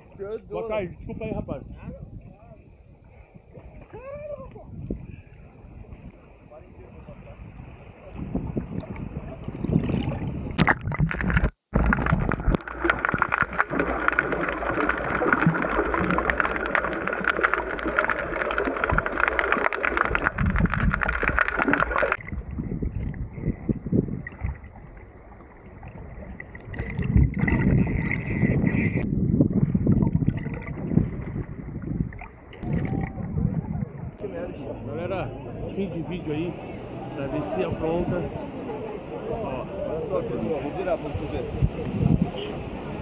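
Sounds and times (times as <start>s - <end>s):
fine underwater crackles: 7.9s - 34.3s
water sloshing and gurgling: 8.1s - 34.3s.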